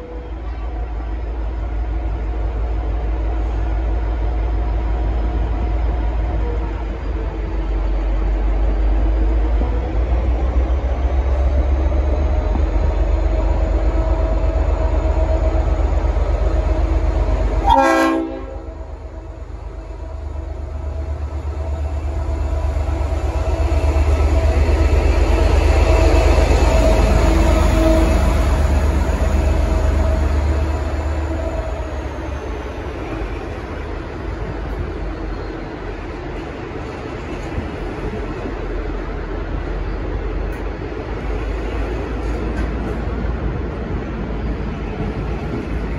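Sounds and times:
diesel locomotive rumble: 0.0 - 45.9
air horn blasts: 17.6 - 18.7.

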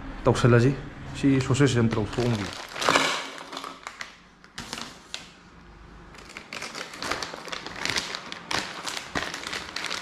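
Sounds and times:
plastic bag crinkling: 1.7 - 5.4, 6.1 - 10.0.

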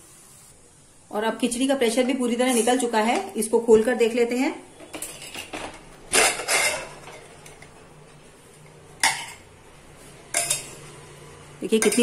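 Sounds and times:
metal lid scraping and rattling: 5.0 - 7.6.

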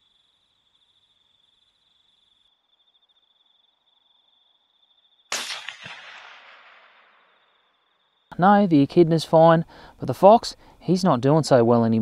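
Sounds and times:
insects trilling: 0.0 - 6.0, 6.8 - 8.6
bullet impact thud: 5.3 - 7.6
suppressed rifle shot: 5.3 - 7.7.

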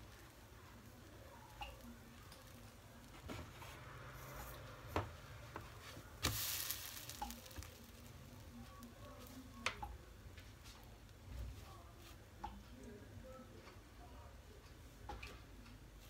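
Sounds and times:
pancake slapping down in pan: 6.2 - 8.2.

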